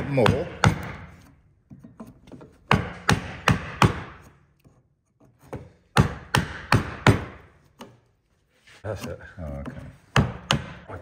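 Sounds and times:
mallet striking chisel into wood: 0.0s - 4.4s, 5.3s - 8.0s, 9.6s - 11.0s.

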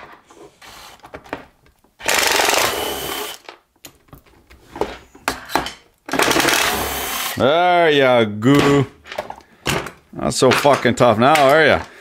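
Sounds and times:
cordless drill running: 2.0s - 3.4s, 6.2s - 7.4s.

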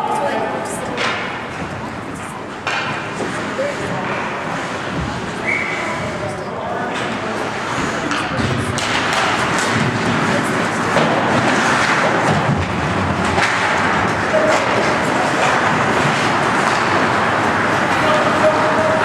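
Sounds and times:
hockey sticks and puck clacking: 0.8s - 1.6s, 2.6s - 6.0s, 6.7s - 19.0s
skates scraping on ice: 6.9s - 19.0s.

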